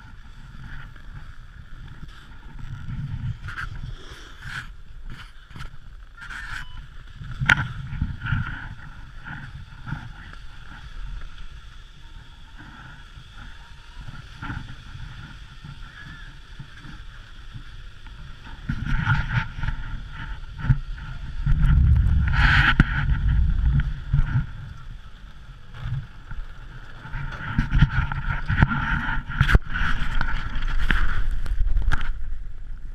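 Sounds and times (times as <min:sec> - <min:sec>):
faint machinery whine: 0:00.0 - 0:32.9
low rumble: 0:00.0 - 0:32.9
wind buffeting microphone: 0:00.0 - 0:32.9.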